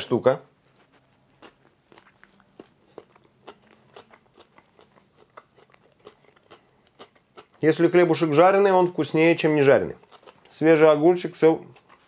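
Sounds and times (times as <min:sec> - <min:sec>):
person chewing cucumber: 0:00.5 - 0:07.8, 0:09.9 - 0:10.6, 0:11.6 - 0:12.0.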